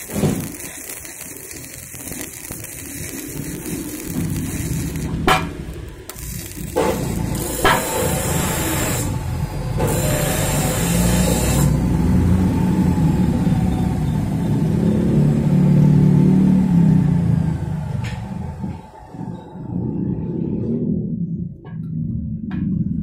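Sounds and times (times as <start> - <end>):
welding arc crackling: 0.0 - 14.3
low engine-like drone: 1.6 - 23.0.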